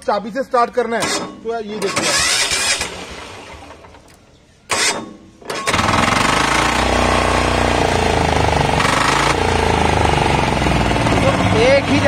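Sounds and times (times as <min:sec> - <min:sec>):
starter cranking: 0:01.0 - 0:12.0
diesel engine clattering: 0:04.7 - 0:12.0.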